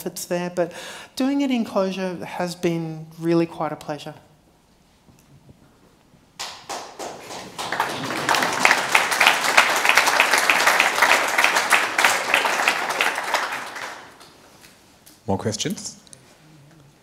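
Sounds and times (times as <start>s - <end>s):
audience applause: 6.4s - 14.4s.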